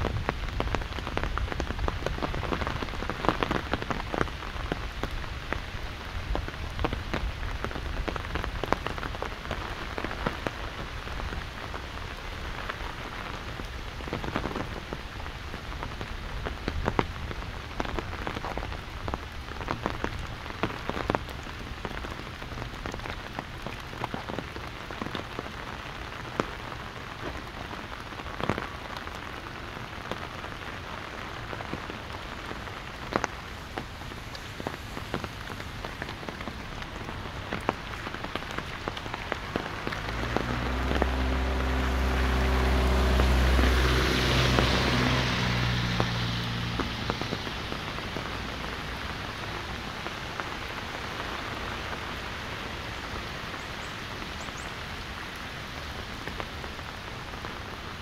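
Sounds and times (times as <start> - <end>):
wind rumble on microphones: 0.0 - 50.4
rain on an umbrella: 0.0 - 58.0.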